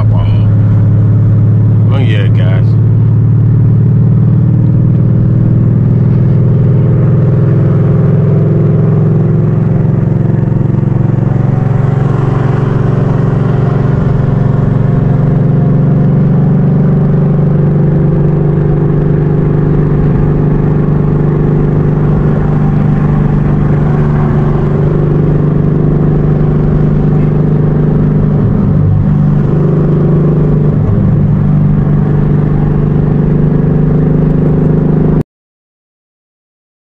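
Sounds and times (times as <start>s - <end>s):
car engine exhaust drone: 0.0s - 35.2s.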